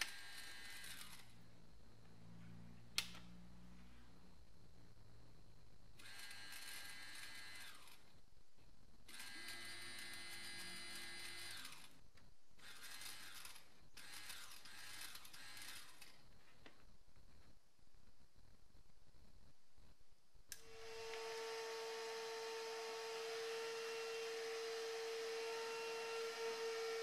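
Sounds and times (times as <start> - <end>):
electric fuel pump whining: 9.1 - 11.9, 20.5 - 27.0.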